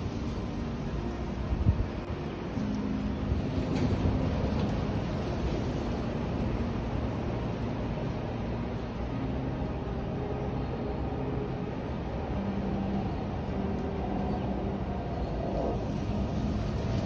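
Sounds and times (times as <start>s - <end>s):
wind buffeting microphone: 0.0s - 9.9s.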